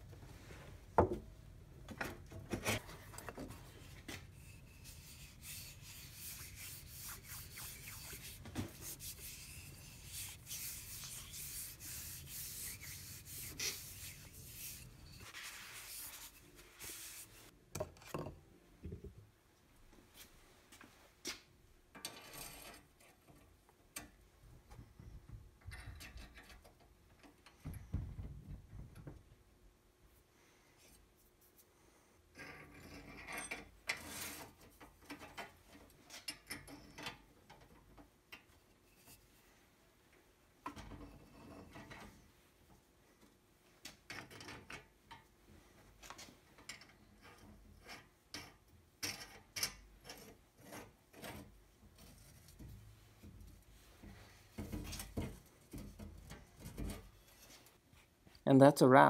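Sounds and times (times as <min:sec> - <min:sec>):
hand rubbing oil into wood: 0:04.0 - 0:17.5.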